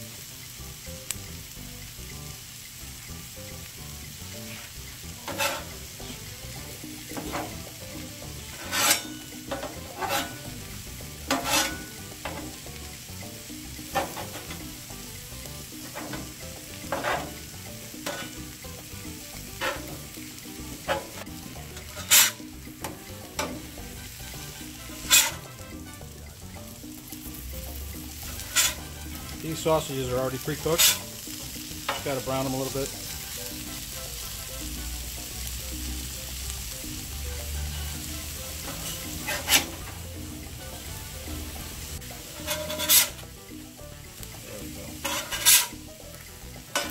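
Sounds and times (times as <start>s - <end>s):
food sizzling on griddle: 0.0s - 46.9s
metal spatula scraping griddle: 4.4s - 12.7s, 13.8s - 14.9s, 15.5s - 18.8s, 19.4s - 26.0s, 28.1s - 33.2s, 37.8s - 40.1s, 42.1s - 43.3s, 44.8s - 45.9s, 46.7s - 46.9s.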